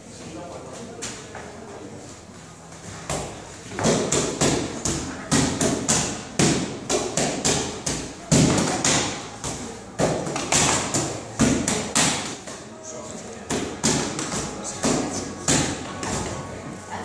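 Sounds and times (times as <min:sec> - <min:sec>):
punches slapping focus mitts: 0:03.1 - 0:12.4.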